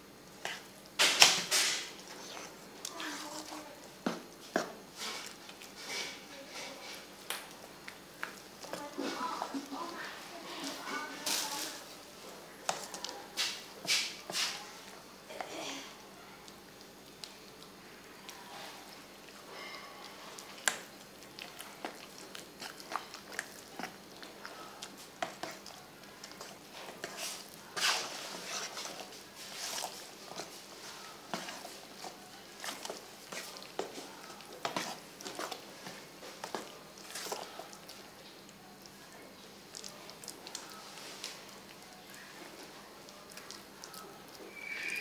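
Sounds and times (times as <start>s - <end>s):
wet squelches of mixing: 0.0s - 45.0s
spoon scraping metal bowl: 26.4s - 33.8s.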